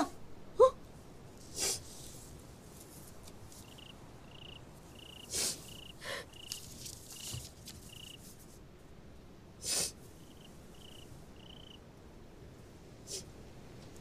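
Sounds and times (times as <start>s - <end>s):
breathy sniffs: 1.4s - 2.1s, 5.2s - 6.4s, 9.6s - 10.0s, 13.0s - 13.3s
cricket chirping: 3.5s - 8.3s, 10.1s - 11.8s.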